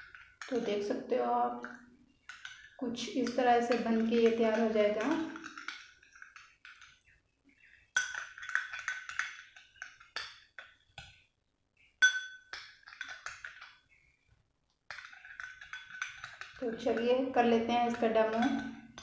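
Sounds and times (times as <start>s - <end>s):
spoon clinking against glass bowl: 1.6s - 7.1s, 7.9s - 10.8s, 12.0s - 13.8s, 14.9s - 19.0s.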